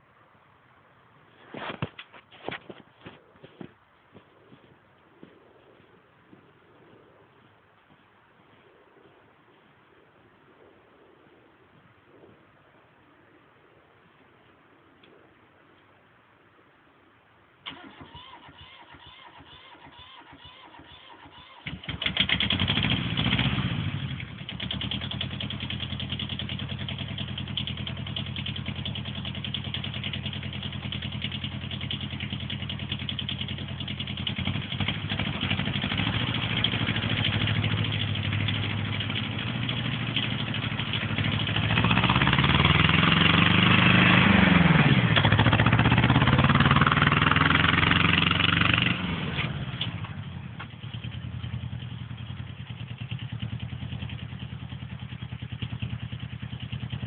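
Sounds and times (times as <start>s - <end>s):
tractor diesel engine running: 17.6s - 57.0s.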